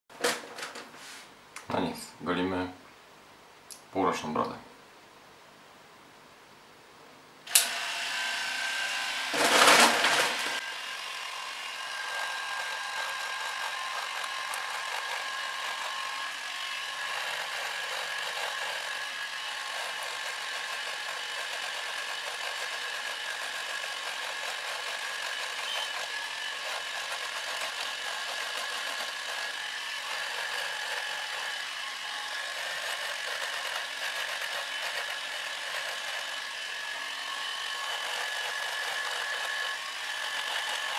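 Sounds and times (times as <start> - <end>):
electric shaver switch click: 7.5 - 7.8
electric shaver whining: 7.5 - 40.9.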